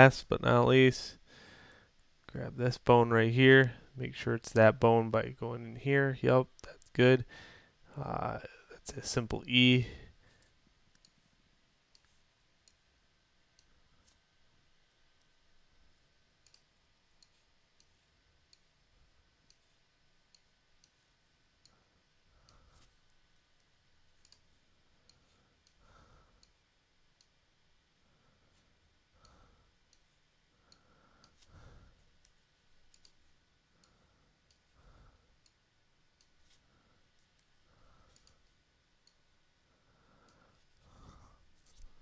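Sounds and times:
computer mouse clicks: 10.9s - 11.2s, 16.4s - 18.7s, 23.6s - 25.8s, 32.2s - 33.2s, 37.2s - 39.2s.

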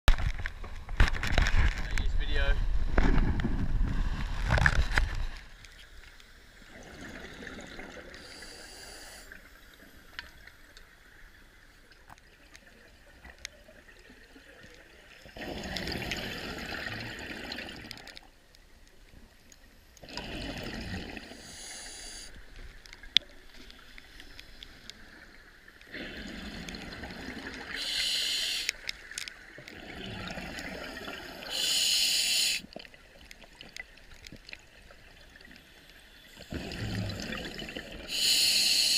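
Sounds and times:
exhaled bubbles gurgling: 6.6s - 9.4s, 15.2s - 18.1s, 20.0s - 22.3s, 25.0s - 28.6s, 29.5s - 32.6s, 36.4s - 38.6s
regulator breath hiss: 8.2s - 9.4s, 21.4s - 22.4s, 27.7s - 28.8s, 31.4s - 32.7s, 38.1s - 38.9s.

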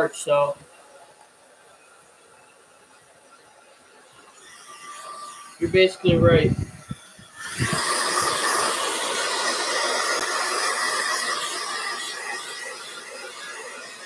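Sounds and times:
hair dryer blowing: 4.2s - 14.0s.

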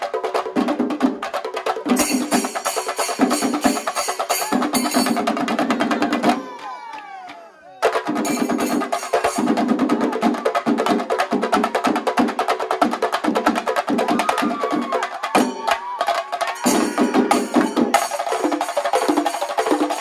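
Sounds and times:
cymbals ringing: 16.6s - 20.0s.

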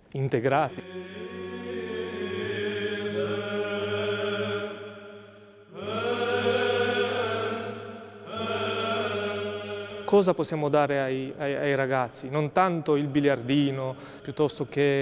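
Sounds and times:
voices chanting: 0.6s - 10.8s
low drone: 0.7s - 10.5s
singers breathing: 5.1s - 5.8s, 13.9s - 14.4s.

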